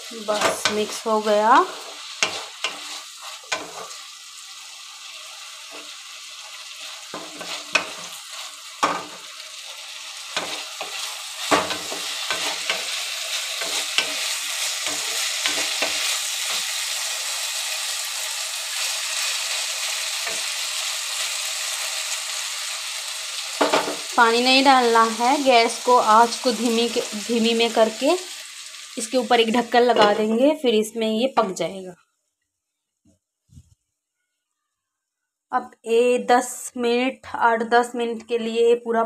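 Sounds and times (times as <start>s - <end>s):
vegetables sizzling in oil: 0.0s - 31.8s
spatula knocking and scraping pan: 0.3s - 4.0s, 7.0s - 9.3s, 10.3s - 16.8s, 29.9s - 30.3s.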